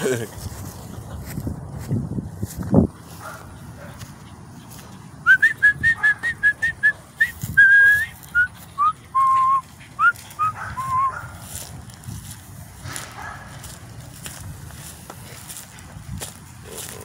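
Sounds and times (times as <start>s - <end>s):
person whistling to call a dog: 5.2s - 11.2s.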